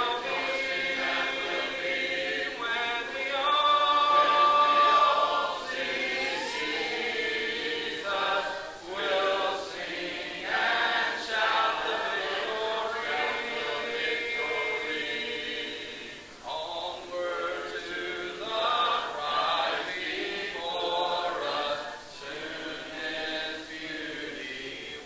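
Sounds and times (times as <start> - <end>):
congregation singing a hymn: 0.0 - 25.0.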